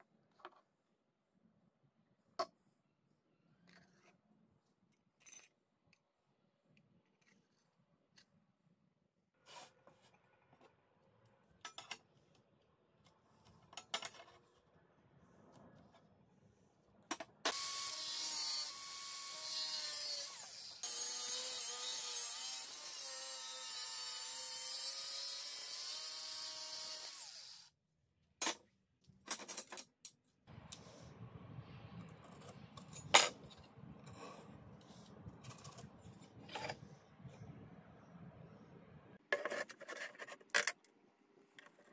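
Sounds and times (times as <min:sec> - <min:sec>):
angle grinder cutting steel: 0:17.5 - 0:27.7.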